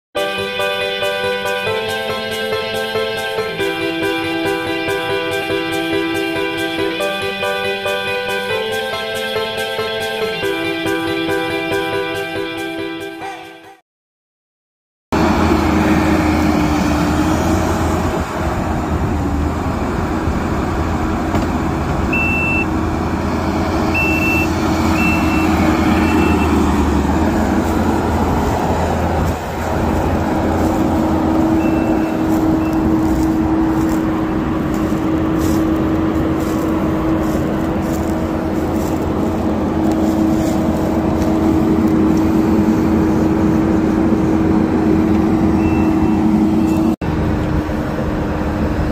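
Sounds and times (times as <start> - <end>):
diesel engine running: 0.2 - 12.2, 15.1 - 48.9
backup alarm beeps: 22.1 - 22.7, 24.0 - 26.6, 31.5 - 32.9, 45.5 - 47.0.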